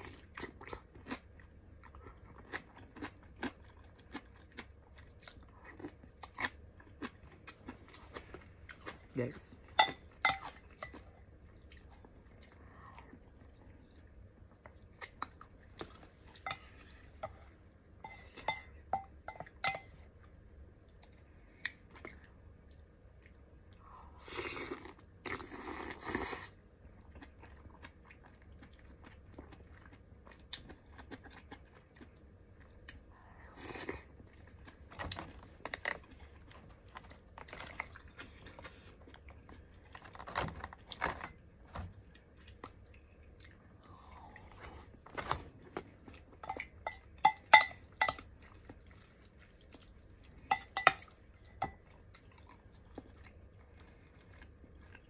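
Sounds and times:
person chewing: 0.0s - 9.1s, 9.8s - 41.2s, 42.0s - 55.0s
spoon clinking against bowls: 9.8s - 11.0s, 16.4s - 16.7s, 18.0s - 20.0s, 46.4s - 48.3s, 50.5s - 51.8s.

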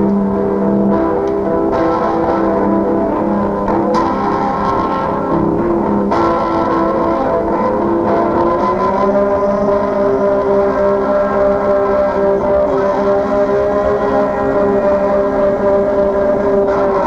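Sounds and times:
lo-fi noise guitar chords: 0.0s - 17.0s.

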